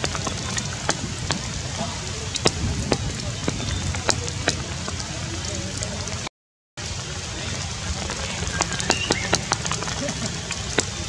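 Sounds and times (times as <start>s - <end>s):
rain on foliage: 0.0s - 11.0s
raindrops tapping leaves: 0.0s - 11.0s.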